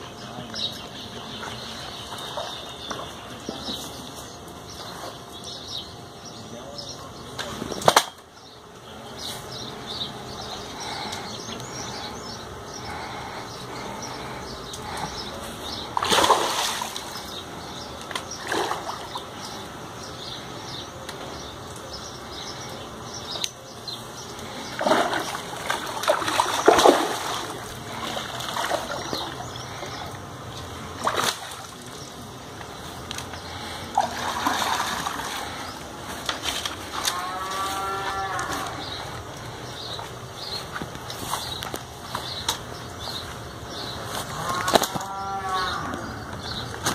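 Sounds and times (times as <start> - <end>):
fish splashing at water surface: 16.0 - 17.2, 24.7 - 29.4, 31.0 - 32.0, 33.9 - 35.5.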